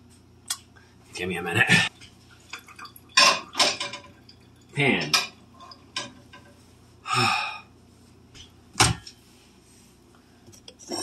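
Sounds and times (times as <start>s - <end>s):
cookware rattling clatter: 2.5s - 6.6s.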